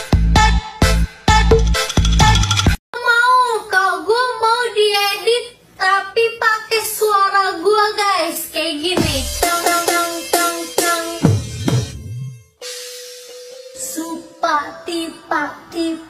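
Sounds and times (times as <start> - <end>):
bass and beat: 0.0 - 2.8, 9.0 - 12.3
high singing voice: 5.8 - 11.3, 13.8 - 16.0.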